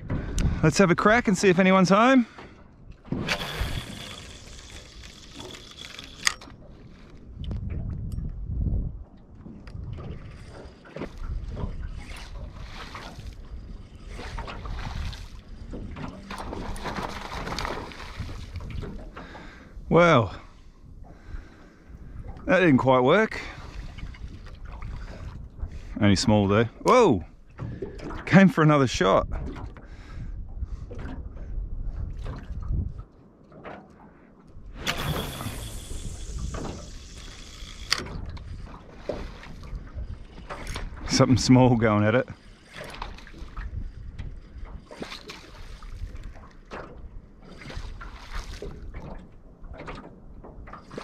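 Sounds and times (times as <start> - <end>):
wind buffeting microphone: 0.0 - 1.8, 2.5 - 33.1, 34.5 - 51.0
line running off reel: 3.1 - 6.6, 34.7 - 38.4
reel click: 3.2 - 7.2, 34.8 - 38.5
water slapping against boat hull: 6.5 - 19.8, 37.8 - 51.0
low hum: 13.4 - 19.6.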